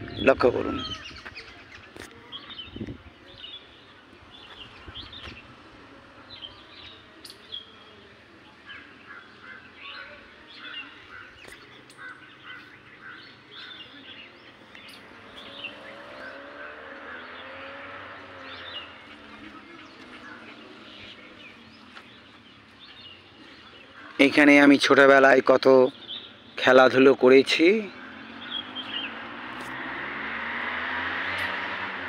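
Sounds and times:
birds chirping and calling: 0.0s - 32.0s.

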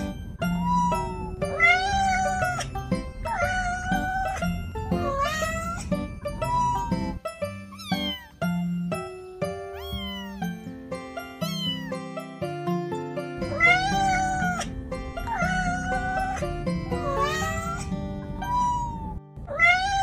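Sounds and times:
background music: 0.0s - 20.0s
cat meowing: 0.5s - 8.4s, 9.7s - 10.6s, 11.4s - 12.0s, 13.5s - 20.0s.

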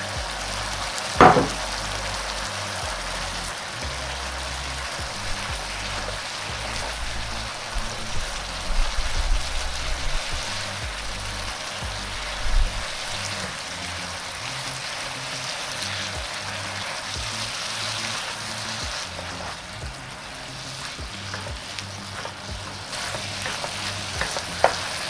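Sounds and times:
vegetables sizzling in a pan: 0.0s - 25.0s
spatula knocking against pan: 1.2s - 1.6s.

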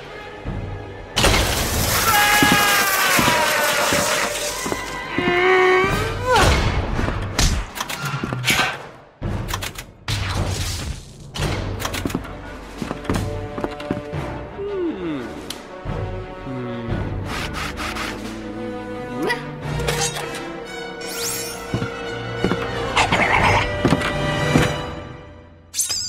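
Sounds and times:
sliding wailing cries: 1.9s - 6.0s.

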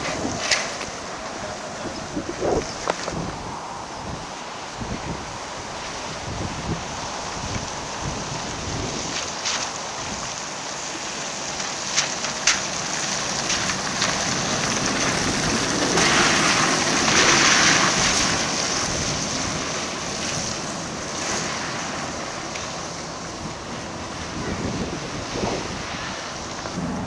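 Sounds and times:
wind rumble on microphone: 0.0s - 11.1s, 12.0s - 27.0s
tyres hissing on wet road: 0.0s - 27.0s
trolleybus passing: 9.6s - 27.0s.

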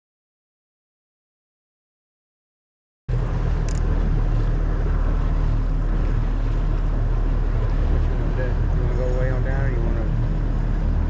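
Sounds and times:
boat engine running: 3.1s - 11.0s
water noise: 3.1s - 11.0s
wind: 3.1s - 11.0s.

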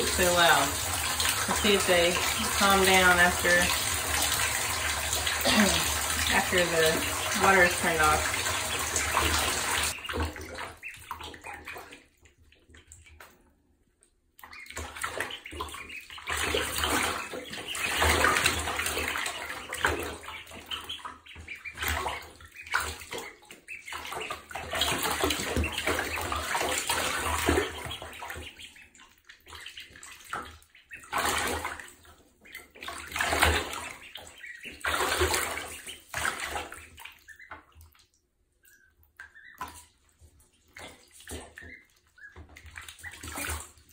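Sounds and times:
water splashing in bathtub: 0.0s - 43.9s.

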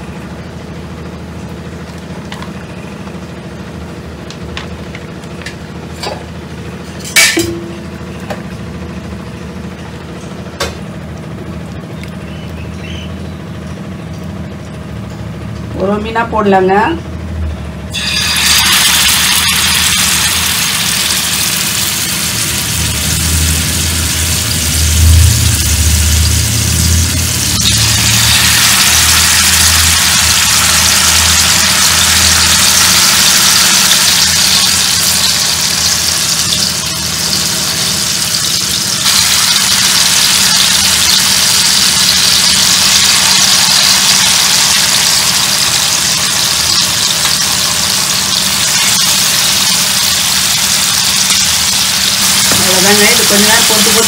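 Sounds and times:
low hum: 0.0s - 54.0s
hot oil sizzling: 17.9s - 54.0s.

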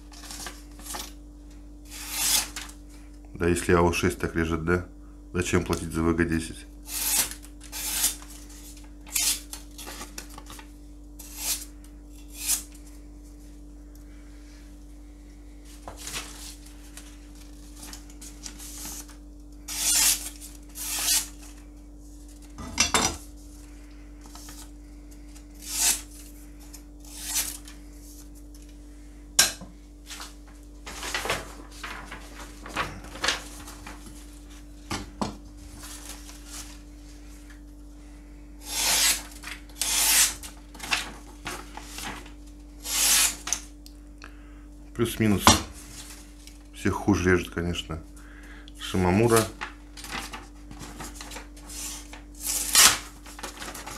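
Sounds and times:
faint steady hum: 0.0s - 53.9s
knife slicing paper: 38.6s - 41.0s, 42.8s - 43.5s.

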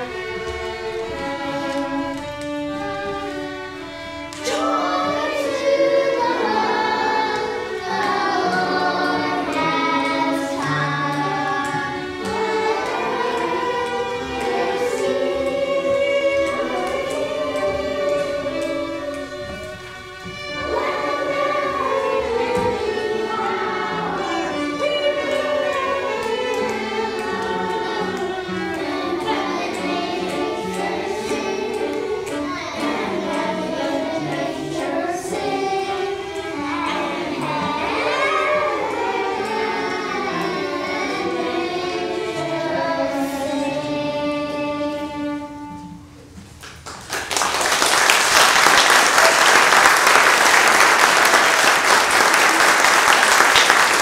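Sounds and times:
children singing together: 0.0s - 46.2s
applause: 46.6s - 54.0s.

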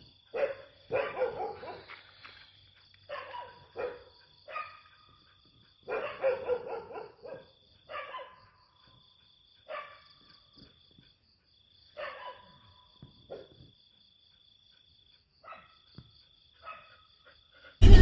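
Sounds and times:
crickets chirping: 0.0s - 17.8s
dog barking: 0.3s - 2.0s, 3.1s - 5.2s, 5.8s - 8.7s, 9.6s - 10.2s, 11.9s - 13.6s, 15.4s - 15.9s, 16.6s - 17.2s.

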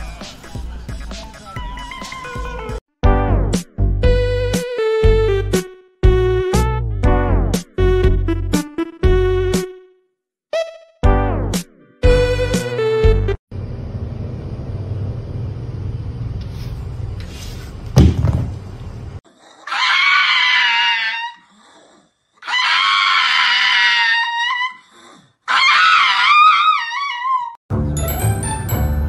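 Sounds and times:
sharp thump: 18.0s - 18.6s
dog howling: 19.6s - 21.6s, 22.4s - 27.6s.

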